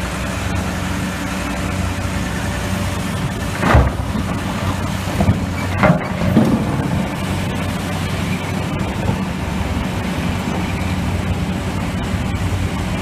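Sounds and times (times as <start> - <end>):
diesel engines running under load: 0.0 - 13.0
rock crashing into truck bed: 3.5 - 7.1.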